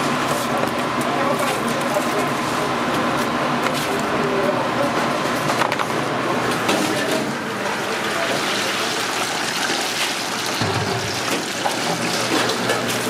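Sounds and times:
oil bubbling in deep fryer: 7.6s - 13.0s.

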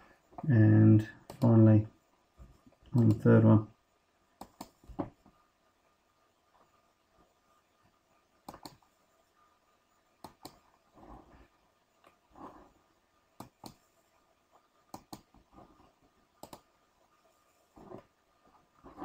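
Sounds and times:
computer mouse buttons clicking: 1.2s - 1.5s, 3.0s - 3.3s, 4.4s - 5.1s, 8.4s - 8.8s, 10.2s - 10.7s, 13.4s - 13.9s, 14.9s - 15.5s, 16.4s - 16.7s.

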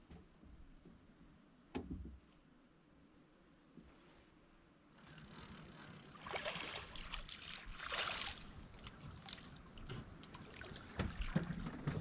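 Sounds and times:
water splashing and churning: 5.0s - 12.0s.

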